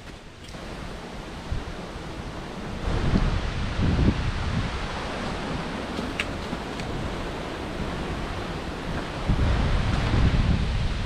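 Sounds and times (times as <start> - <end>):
wind buffeting microphone: 0.0 - 11.0
wind rushing through trees: 0.0 - 11.0.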